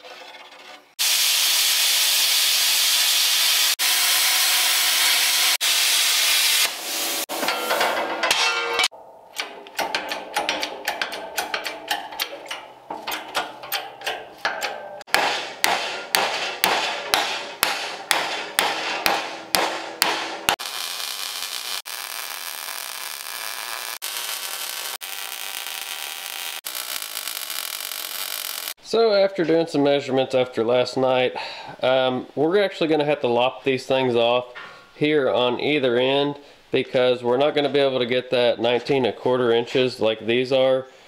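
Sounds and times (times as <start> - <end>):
welding arc hissing: 1.0 - 7.4, 20.5 - 28.8
hammer striking steel plate: 7.3 - 24.8.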